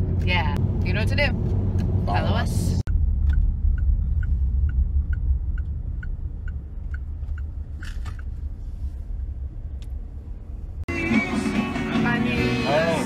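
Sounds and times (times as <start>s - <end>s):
car road and engine rumble: 0.0s - 13.0s
turn signal ticking: 2.9s - 8.6s.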